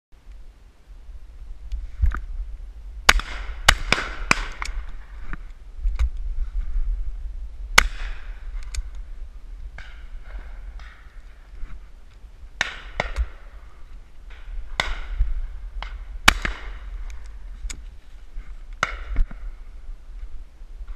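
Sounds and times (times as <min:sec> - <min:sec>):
wind rumble on microphone: 0:00.2 - 0:20.9
shotgun shots echoing: 0:03.1 - 0:04.8, 0:07.8 - 0:08.4, 0:12.6 - 0:13.6, 0:14.3 - 0:17.0.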